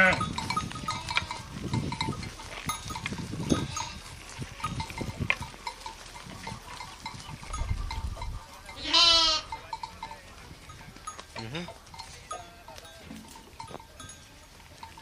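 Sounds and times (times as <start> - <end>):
sheep bleating: 0.0 - 0.3, 0.9 - 1.5, 8.8 - 9.6.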